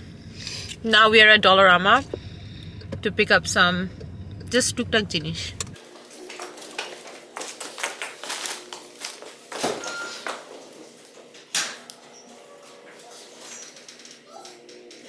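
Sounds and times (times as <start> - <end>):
shopping bags set down: 5.8 - 10.9
footsteps on tiled floor: 5.8 - 13.7.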